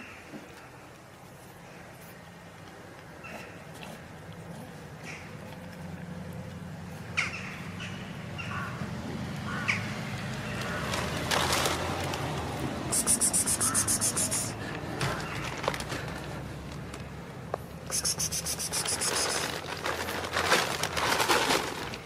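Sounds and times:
rapid high-pitched chattering: 12.9s - 14.6s, 17.9s - 19.4s
short high calls: 12.9s - 14.6s, 17.9s - 19.6s.

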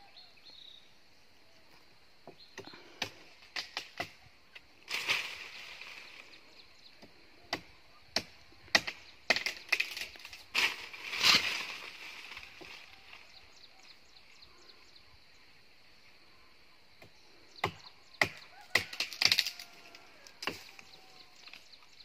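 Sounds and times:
machete chopping wood: 7.0s - 11.7s, 17.6s - 19.7s, 20.4s - 20.8s.

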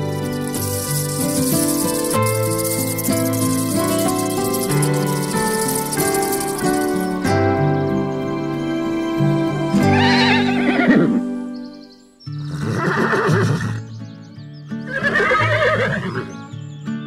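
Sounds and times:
background music: 0.0s - 16.8s
horse whinnying: 9.8s - 11.3s, 12.4s - 13.9s, 14.8s - 16.3s.

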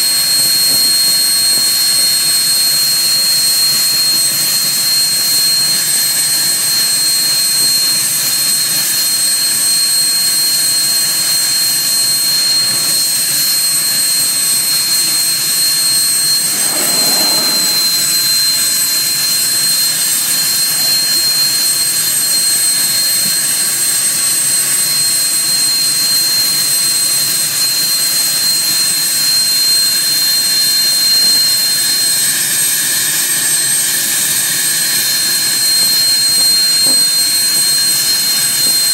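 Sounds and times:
high-pitched jet whine: 0.0s - 23.8s
jet engine running: 0.0s - 24.1s.

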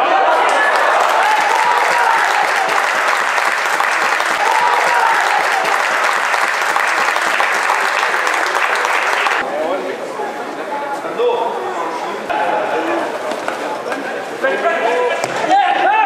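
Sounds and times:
people shouting: 0.0s - 3.3s, 4.0s - 6.3s
spectators clapping and cheering: 0.0s - 9.4s.

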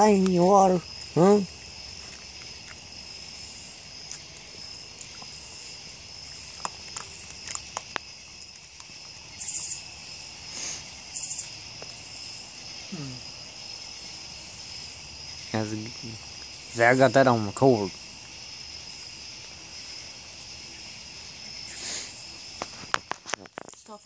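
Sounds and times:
night insects chirping: 0.0s - 24.0s
bursts of high hiss: 10.4s - 11.5s, 21.6s - 22.3s.

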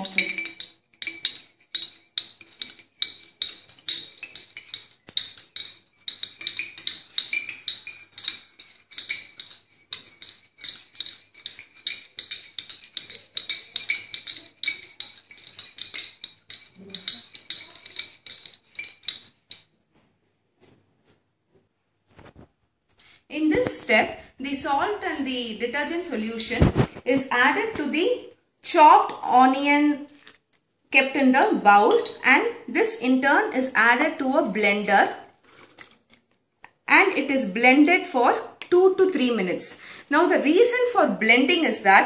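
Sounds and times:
glass rod clinking in glass flask: 0.0s - 19.7s.

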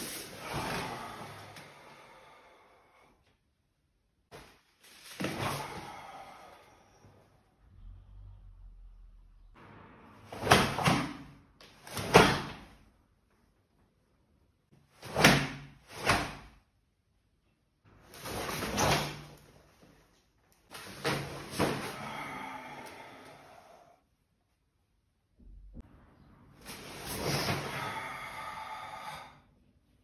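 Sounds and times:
karate uniform snapping and swishing: 4.3s - 5.7s, 10.3s - 12.8s, 15.0s - 16.6s, 18.1s - 22.0s.

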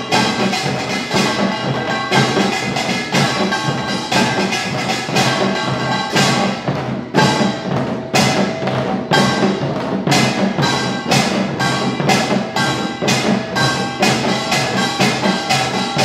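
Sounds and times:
hourglass drums: 0.0s - 16.0s
small brass gongs clanging: 0.0s - 16.0s.

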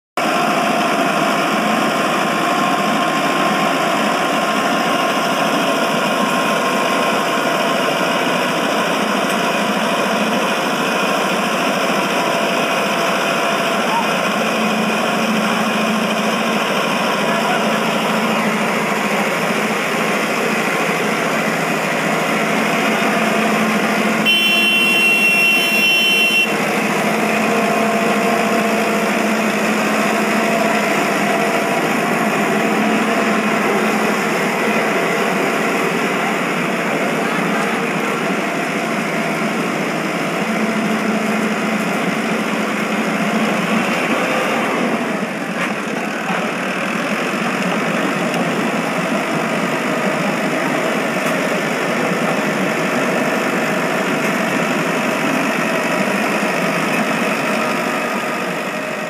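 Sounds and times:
people's voices: 0.2s - 24.4s, 26.4s - 59.0s
diesel tractor engine running: 0.2s - 59.0s.

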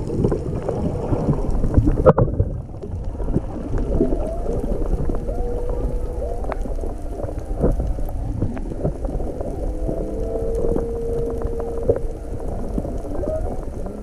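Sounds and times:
low underwater rumble: 0.0s - 14.0s
faint clicks: 1.1s - 14.0s
whale song moans and calls: 3.0s - 14.0s.

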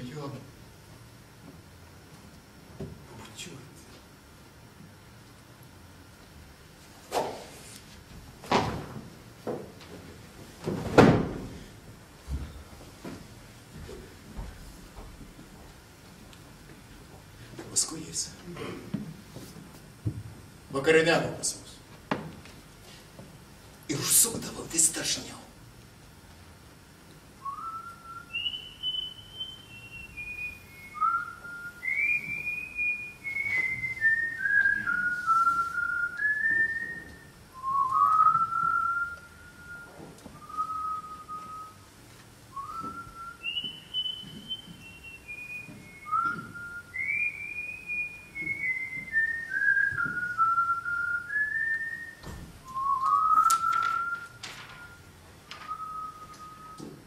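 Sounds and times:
person whistling a tune: 27.4s - 41.9s, 42.5s - 57.0s.

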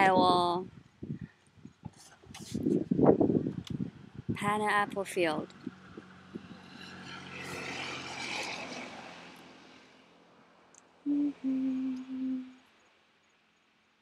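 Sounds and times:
vehicle passing: 5.4s - 12.6s
short low tones: 11.1s - 12.6s.

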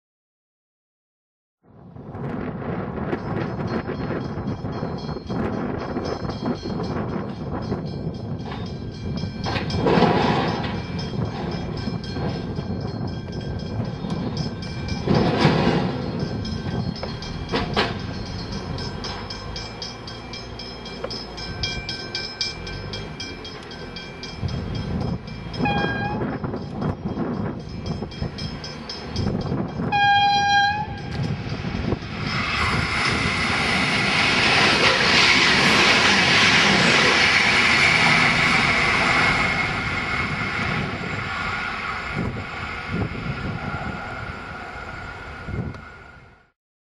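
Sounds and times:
train engine and wheel rush: 1.6s - 46.6s
train horn: 25.6s - 26.4s, 29.8s - 31.3s.

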